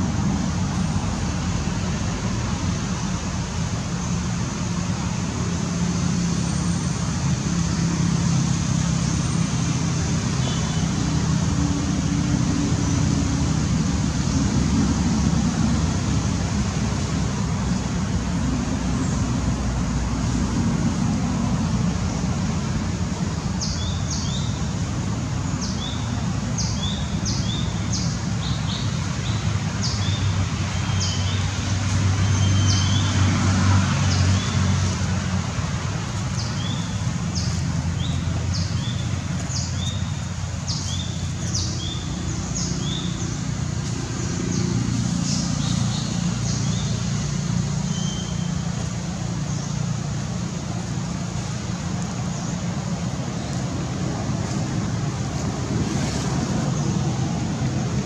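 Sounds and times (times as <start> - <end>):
low engine-like rumble: 0.0 - 58.0.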